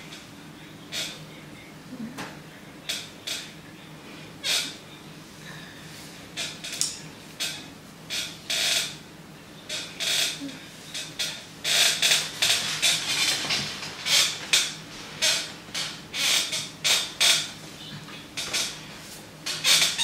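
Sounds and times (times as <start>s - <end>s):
chair creaking: 6.4s - 9.0s, 9.7s - 17.6s, 18.4s - 20.0s.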